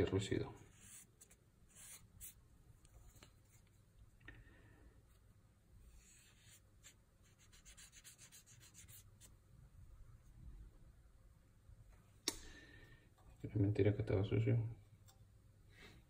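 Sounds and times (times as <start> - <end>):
cotton swab scratching metal: 0.6 - 3.7, 5.9 - 9.4.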